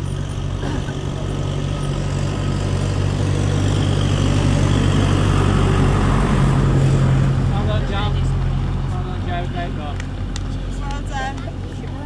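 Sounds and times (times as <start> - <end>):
engine idling: 0.0 - 6.2.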